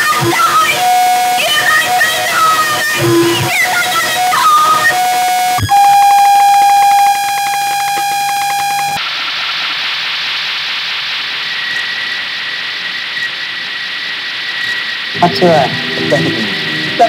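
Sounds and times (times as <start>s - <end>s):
loud electronic buzzing tone: 0.0s - 9.0s
faint high whine: 0.0s - 17.0s
steady hiss: 0.0s - 17.0s.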